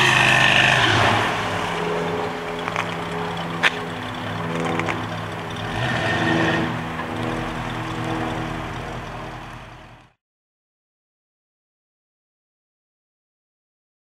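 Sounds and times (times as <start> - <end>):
tyres spinning: 0.0 - 10.1
car engine at high revs: 0.0 - 10.2.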